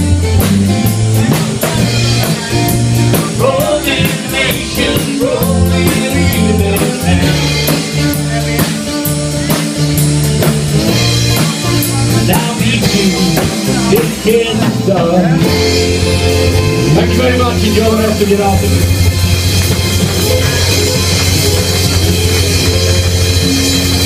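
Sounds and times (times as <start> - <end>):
drum kit with cymbal strokes: 0.0 - 24.0
electric bass: 0.0 - 24.0
strummed acoustic guitars: 0.0 - 24.0
person singing: 1.1 - 10.0, 10.9 - 19.2.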